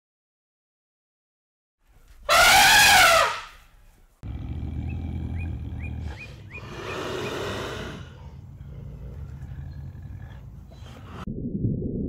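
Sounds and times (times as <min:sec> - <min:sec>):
elephant trumpeting: 0:02.3 - 0:03.7
bird chirps: 0:04.7 - 0:07.5.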